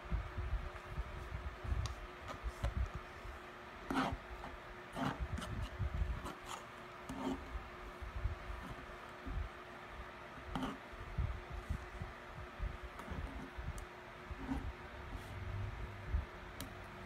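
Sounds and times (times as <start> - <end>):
palette knife scraping paint: 3.8 - 7.6, 10.4 - 10.9, 14.3 - 14.7.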